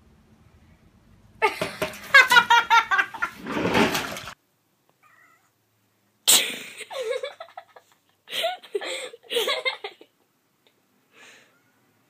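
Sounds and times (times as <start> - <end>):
cat yowling: 5.0 - 5.5.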